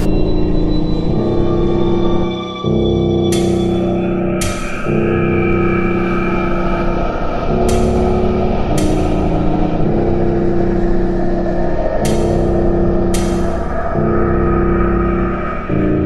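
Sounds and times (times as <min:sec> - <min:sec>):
dark industrial electronic music: 0:00.0 - 0:16.0.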